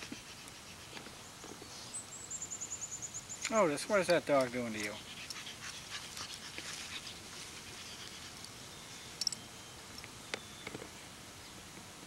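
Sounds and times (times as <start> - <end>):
dogs rustling on grass: 3.4 - 9.9.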